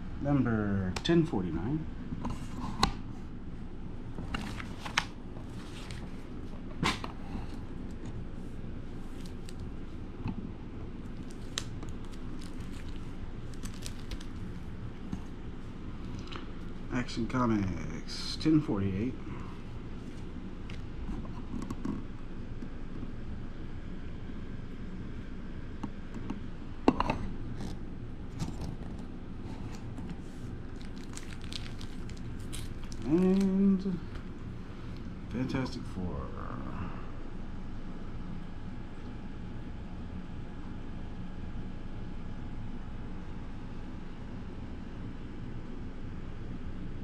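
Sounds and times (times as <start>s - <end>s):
plastic sleeves crinkling: 4.2s - 6.5s, 8.9s - 10.0s, 11.0s - 15.3s, 28.3s - 35.1s.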